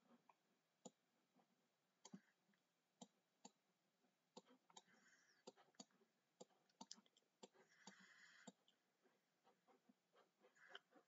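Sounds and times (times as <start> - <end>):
computer mouse clicking: 3.0 - 3.6.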